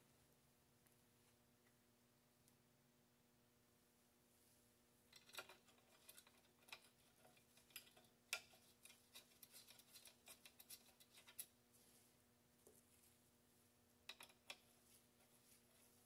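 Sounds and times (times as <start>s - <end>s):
metal parts clicking and tapping: 5.1s - 11.5s, 14.0s - 14.7s.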